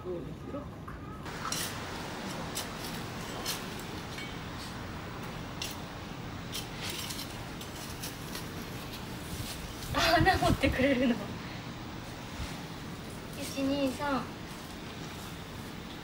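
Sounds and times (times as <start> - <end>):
shovel and puppy scraping dirt: 1.3 - 4.7, 5.6 - 9.9.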